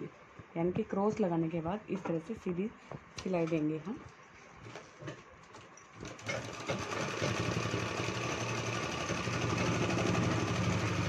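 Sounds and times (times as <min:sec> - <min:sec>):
sewing machine running: 0:06.0 - 0:11.0.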